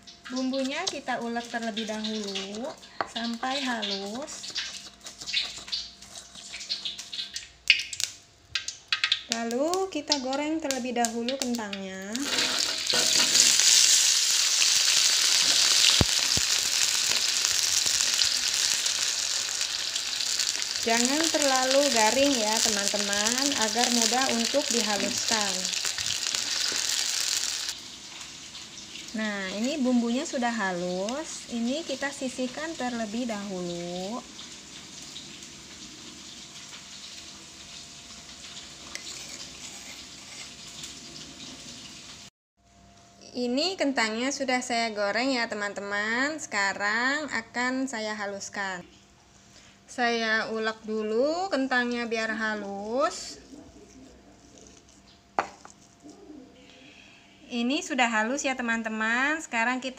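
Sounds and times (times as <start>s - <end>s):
potatoes sizzling in hot oil: 0.0s - 42.3s
steady crackling hiss: 0.0s - 43.2s
spoon scraping stone mortar: 4.3s - 6.8s, 38.9s - 40.7s.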